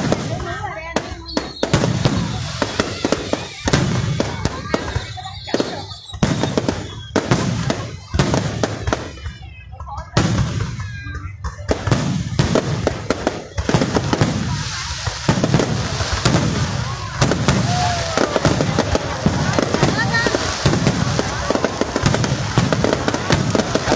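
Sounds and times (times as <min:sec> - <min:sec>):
fireworks bangs: 0:00.0 - 0:23.9
fireworks crackling: 0:00.0 - 0:23.9.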